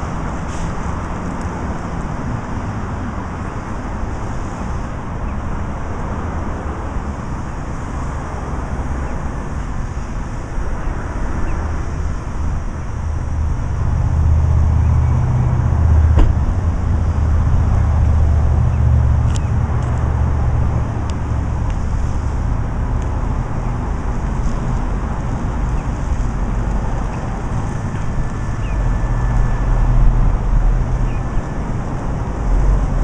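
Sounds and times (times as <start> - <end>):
road traffic noise: 0.0 - 33.0
vehicle engine rumble: 0.0 - 33.0.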